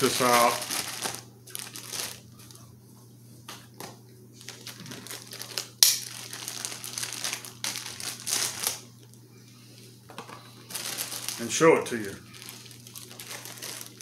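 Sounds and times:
plastic bag crinkling: 0.0s - 2.5s, 4.4s - 8.9s, 10.2s - 14.0s
plastic bag snap: 4.5s - 8.8s.

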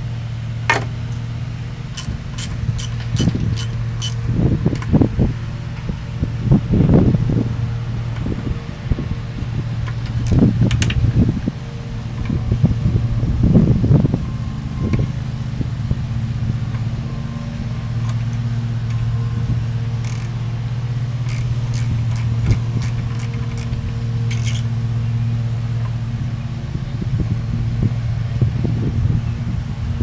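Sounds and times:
low mechanical hum: 0.0s - 30.0s
socket ratchet clicking: 2.0s - 4.9s, 10.0s - 11.0s, 20.0s - 20.4s, 21.2s - 24.7s.

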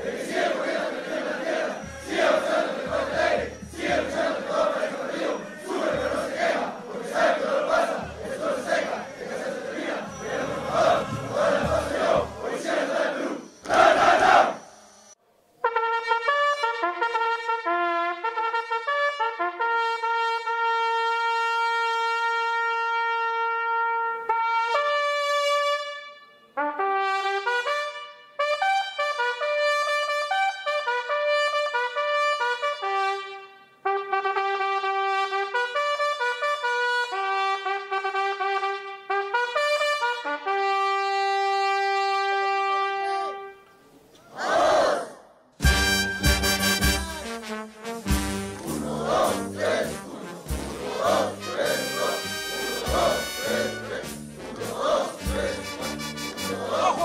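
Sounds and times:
solo trumpet slow melody: 15.6s - 43.8s, 45.6s - 48.8s, 51.4s - 56.6s.

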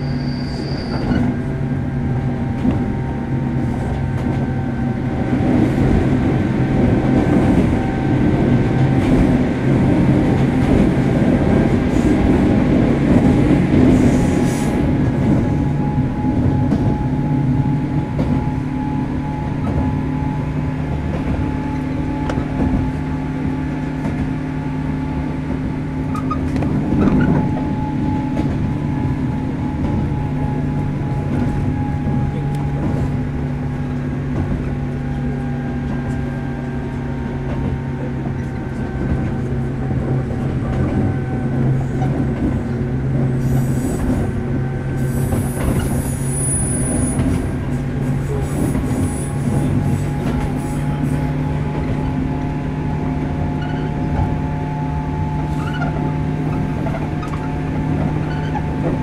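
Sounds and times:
high-pitched wheel squeal: 0.0s - 1.4s, 53.5s - 54.0s, 55.4s - 57.5s
train motor and gear hum: 0.0s - 59.0s.

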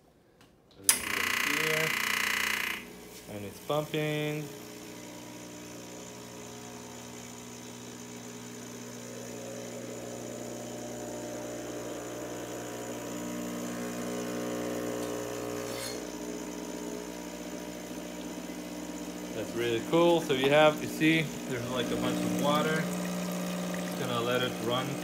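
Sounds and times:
espresso machine pump buzzing: 0.9s - 25.0s.

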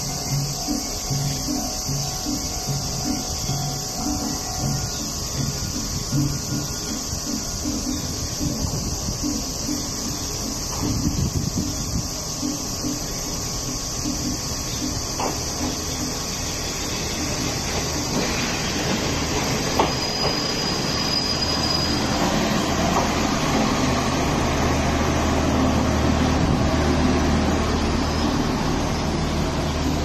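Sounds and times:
high wheel squeal: 0.0s - 24.4s
wheels rumbling on rails: 0.0s - 30.0s
diesel engine low hum: 22.4s - 30.0s.

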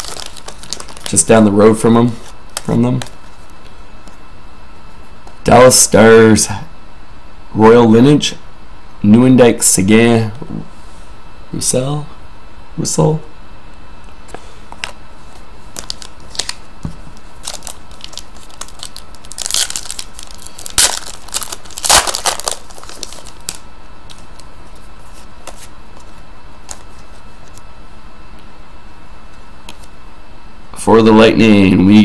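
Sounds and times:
plastic wrapping crinkling: 0.0s - 1.4s, 14.8s - 27.6s.

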